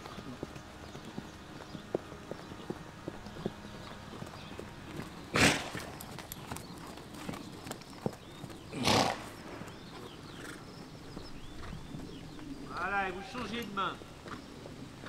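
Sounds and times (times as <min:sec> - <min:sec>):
hooves beating: 0:00.0 - 0:15.0
horse snorting: 0:04.6 - 0:07.5, 0:08.2 - 0:12.9.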